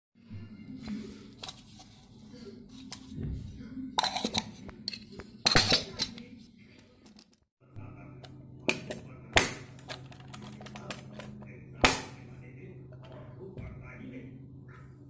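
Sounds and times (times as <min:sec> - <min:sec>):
metal lids clinking: 0:04.0 - 0:06.2, 0:08.7 - 0:12.0.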